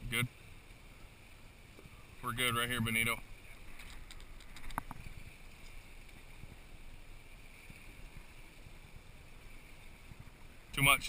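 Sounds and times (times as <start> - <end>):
boat engines rumbling: 0.0 - 11.0
water along hull: 0.0 - 11.0.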